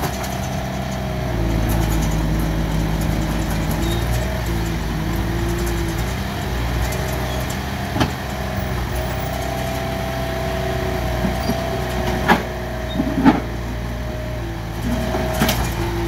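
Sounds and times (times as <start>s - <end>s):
excavator engine running: 0.0s - 16.0s
hydraulic whine: 0.0s - 16.0s.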